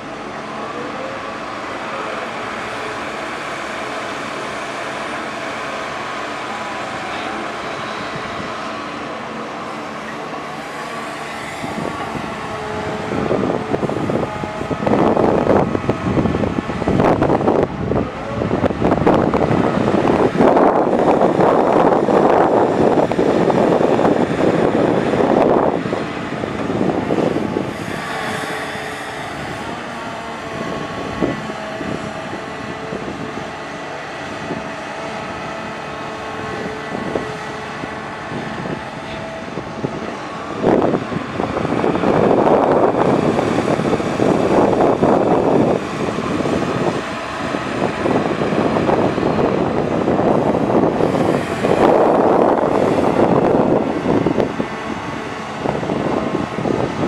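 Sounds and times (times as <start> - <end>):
excavator diesel engine: 0.0 - 57.0
hydraulic pump whine: 0.0 - 57.0.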